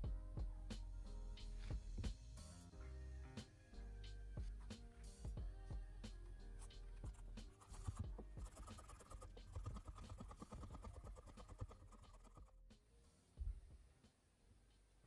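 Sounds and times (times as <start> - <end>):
cloth rubbing on pen barrel: 6.6 - 12.5.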